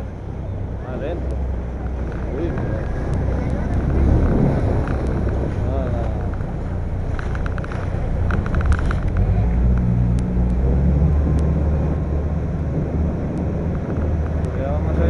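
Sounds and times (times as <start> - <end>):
boat engine droning: 0.0 - 15.0
wind buffeting microphone: 0.0 - 15.0
clatter of sharp clicks: 7.1 - 10.6.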